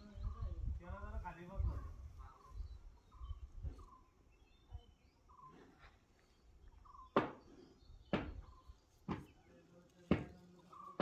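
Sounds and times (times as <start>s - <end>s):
sharp knocks: 7.1s - 7.4s, 8.1s - 8.4s.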